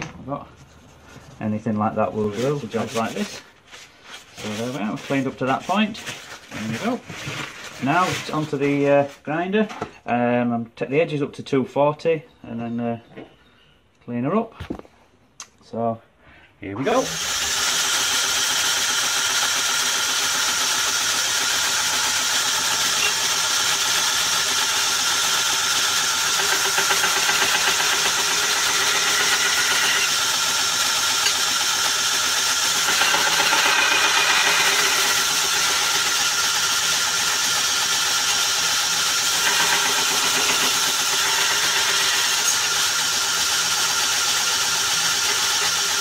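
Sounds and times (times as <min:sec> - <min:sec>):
belt grinder running: 0:16.9 - 0:46.0
steel blade grinding on belt: 0:22.4 - 0:36.6, 0:39.2 - 0:46.0.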